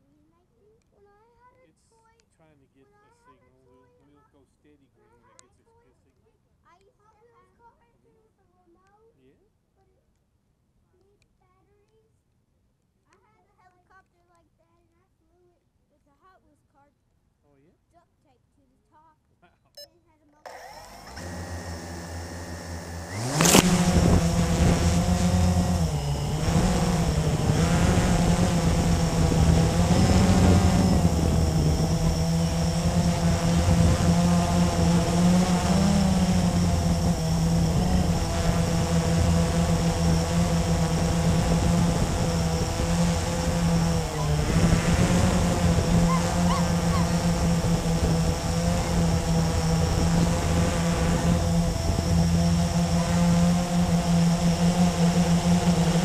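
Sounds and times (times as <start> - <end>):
quadcopter motors humming: 20.5 - 56.0.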